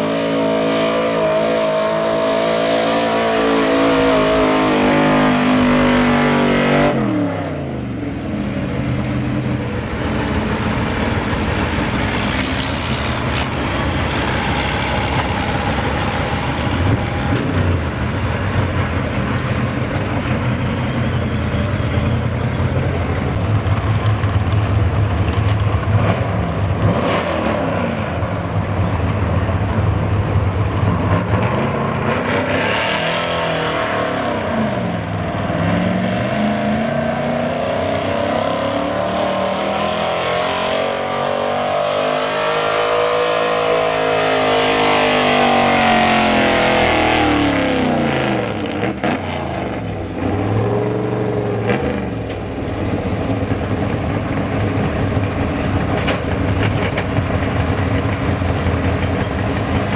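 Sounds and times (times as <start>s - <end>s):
pickup truck engine revving: 0.0s - 20.0s, 31.0s - 59.0s
engines idling: 6.9s - 26.8s, 28.2s - 31.3s, 45.5s - 59.9s.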